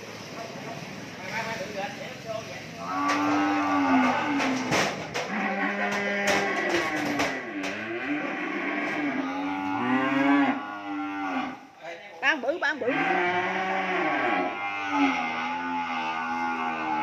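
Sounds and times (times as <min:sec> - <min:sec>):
cattle mooing: 0:02.8 - 0:11.7, 0:12.7 - 0:17.0.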